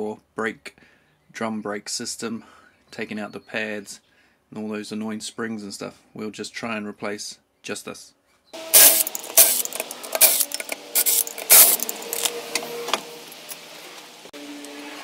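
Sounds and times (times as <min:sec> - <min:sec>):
impact wrench hammering: 0:08.6 - 0:12.3.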